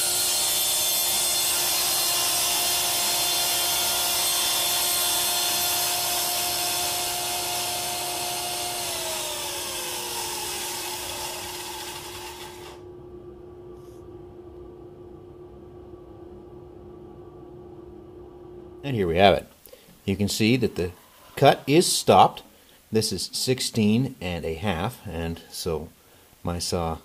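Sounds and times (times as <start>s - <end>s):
saw winding down: 0.0s - 12.8s
table saw cutting: 0.0s - 12.8s
steady hum: 0.0s - 23.4s.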